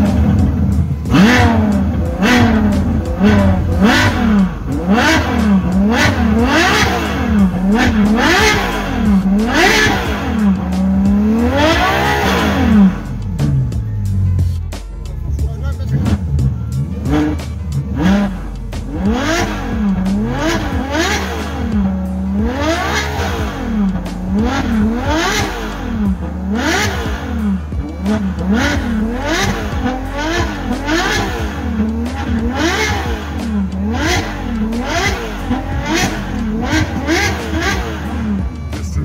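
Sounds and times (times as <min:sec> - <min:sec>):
car engine revving: 0:00.0 - 0:39.0
steady low rumble: 0:00.0 - 0:39.0.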